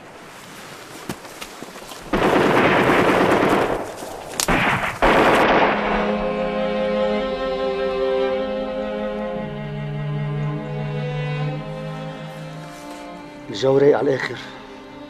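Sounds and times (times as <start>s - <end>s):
automatic gunfire: 2.1s - 6.2s
sad string music: 5.4s - 15.0s.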